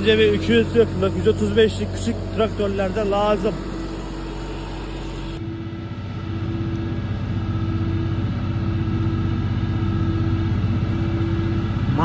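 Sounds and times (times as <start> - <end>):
feed mixer churning: 0.0 - 6.1
tractor engine running under load: 0.0 - 12.0.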